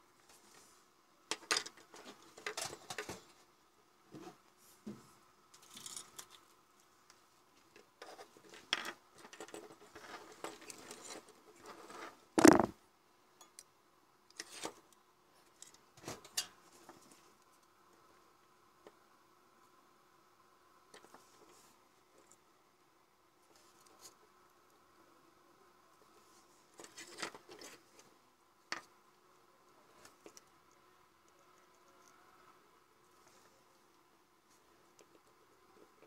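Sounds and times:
plastic parts handled on wooden table: 12.4s - 12.7s.

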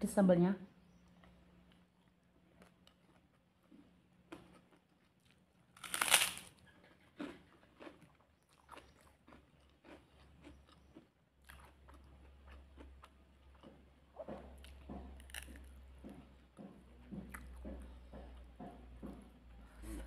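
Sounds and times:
chewing crunching: 1.2s - 15.8s
crunching on fried cracker: 2.0s - 13.8s, 14.6s - 15.7s.

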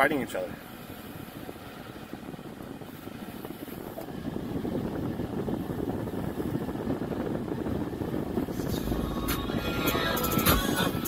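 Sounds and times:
low rushing noise in car cabin: 0.0s - 11.0s.

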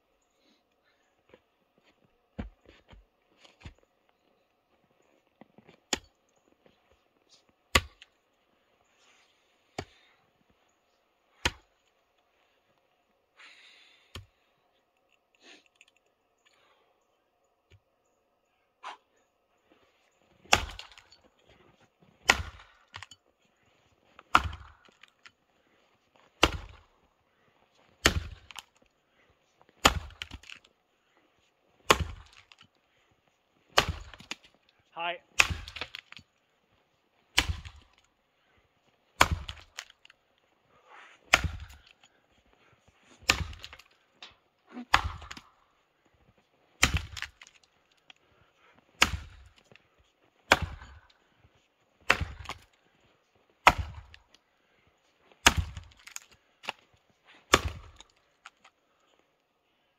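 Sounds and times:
axe chopping log: 7.7s - 8.1s, 11.4s - 11.7s, 20.5s - 21.2s, 22.2s - 23.1s, 24.3s - 25.3s, 26.4s - 26.9s, 28.0s - 28.7s, 29.8s - 30.7s, 31.8s - 32.6s, 33.7s - 34.6s, 35.4s - 36.2s, 37.3s - 38.0s, 39.2s - 40.1s, 41.3s - 42.0s, 43.2s - 44.0s, 44.8s - 45.6s, 46.8s - 47.6s, 49.0s - 49.6s, 50.5s - 51.2s, 52.0s - 52.8s, 53.6s - 54.3s, 55.4s - 56.8s, 57.4s - 58.6s.

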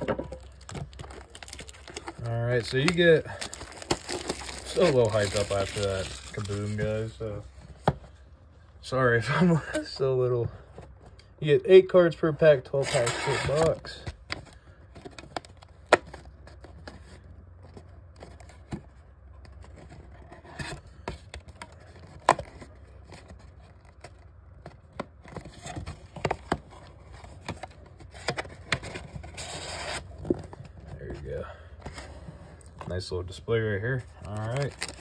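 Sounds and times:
wrapped card pack rustling: 0.0s - 7.4s, 12.8s - 14.1s, 33.8s - 35.0s
cardboard box clicks and scrapes: 24.8s - 30.8s.

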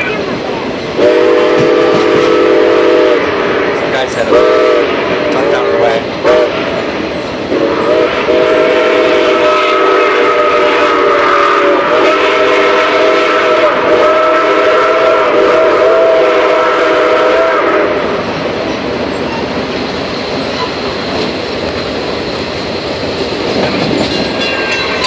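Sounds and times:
train rumbling and clattering: 0.0s - 25.0s
steam whistle: 1.0s - 3.3s, 4.3s - 4.9s, 6.2s - 6.5s, 7.5s - 18.1s.

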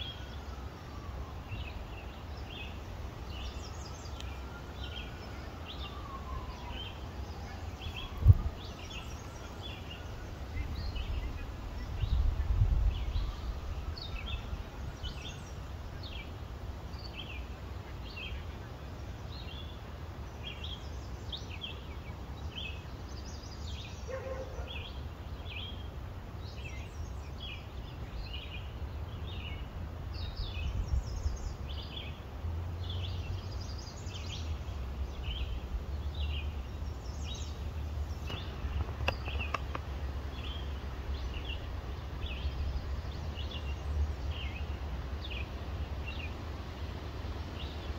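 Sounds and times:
birds chirping: 0.0s - 47.9s.

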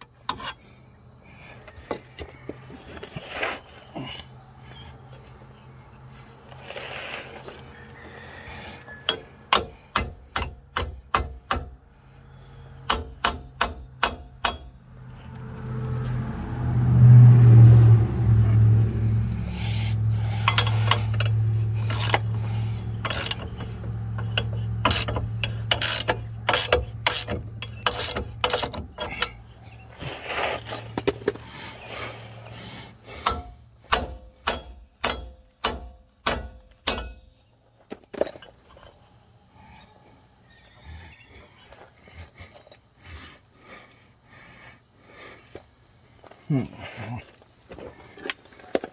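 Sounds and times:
low droning hum: 9.6s - 37.6s
ratchet wrench clicking: 20.4s - 29.5s.

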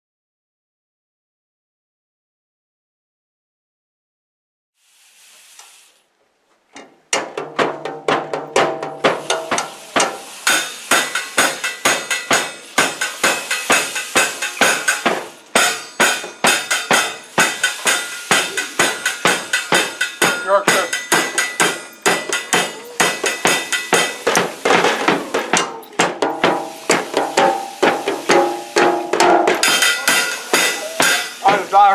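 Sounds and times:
drum kit beat: 7.1s - 31.9s.

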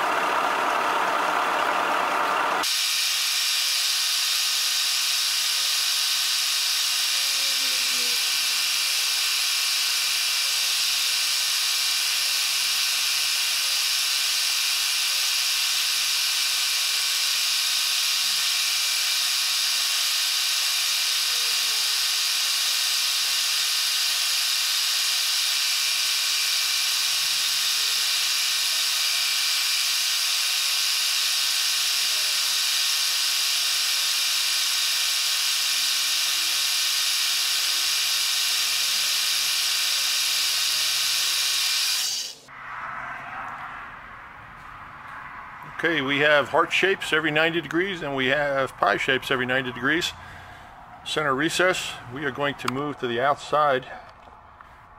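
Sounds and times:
milling machine whine: 0.0s - 42.5s.

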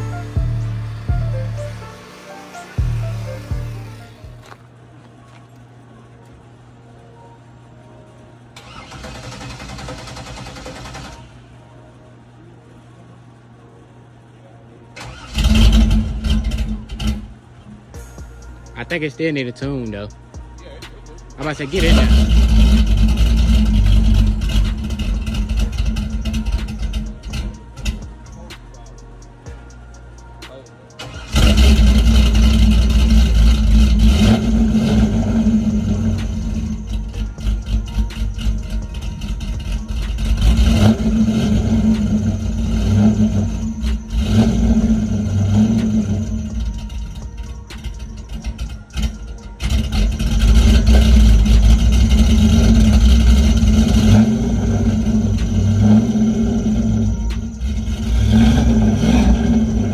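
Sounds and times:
engine idling loudly: 21.4s - 28.4s, 31.3s - 59.9s.

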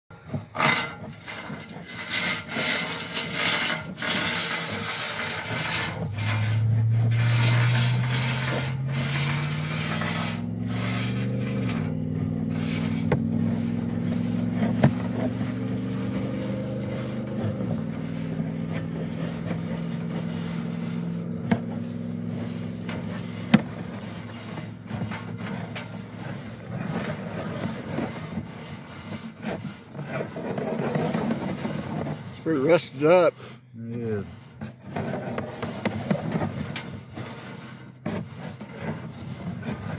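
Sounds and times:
cable scraping in pipe: 0.2s - 33.2s, 34.1s - 39.9s
motor hum: 2.2s - 29.8s.

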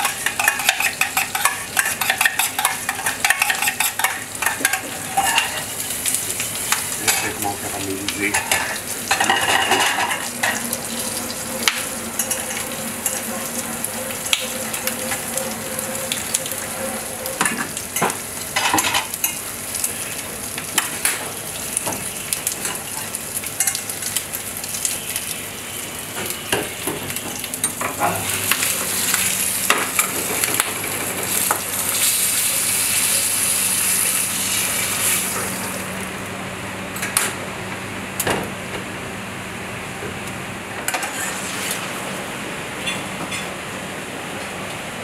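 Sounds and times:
metal spoon clinking on pans: 0.0s - 5.7s, 7.0s - 7.4s, 8.3s - 10.6s
meat sizzling in a frying pan: 0.0s - 35.9s.

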